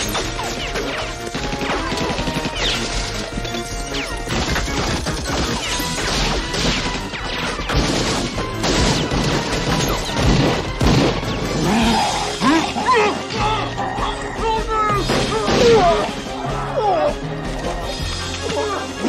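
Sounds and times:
rapid gunfire: 0:00.0 - 0:11.8.

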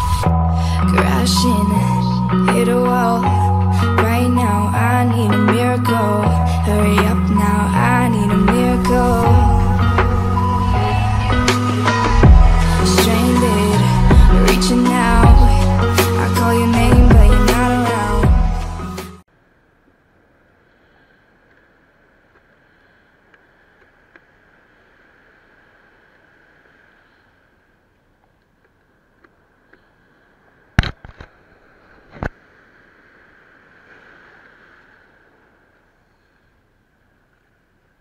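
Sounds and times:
muffled surf breaking on beach: 0:05.5 - 0:18.2, 0:20.0 - 0:38.0.

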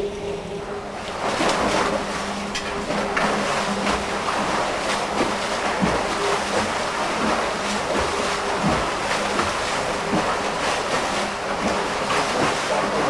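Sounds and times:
churned water rushing and splashing: 0:00.0 - 0:13.0
swimmer stroking through water: 0:00.0 - 0:13.0.

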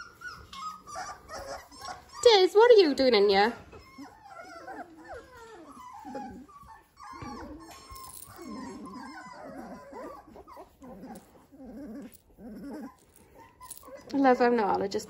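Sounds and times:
puppies whimpering and squeaking: 0:00.0 - 0:15.0.

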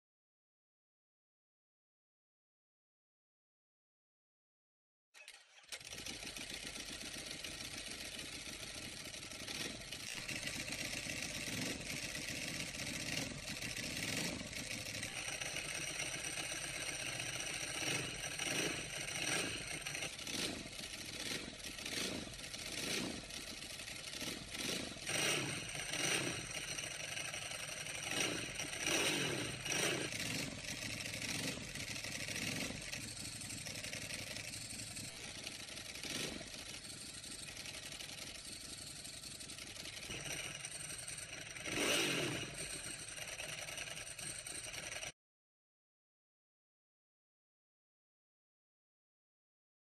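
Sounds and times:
dry clutch rattling: 0:05.2 - 0:45.1
motorcycle engine idling: 0:05.2 - 0:45.1
motorcycle engine revving: 0:05.2 - 0:45.2.

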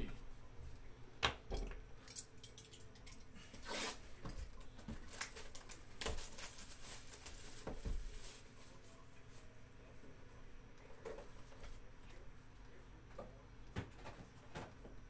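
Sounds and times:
plastic wrap crinkling: 0:05.0 - 0:08.7.

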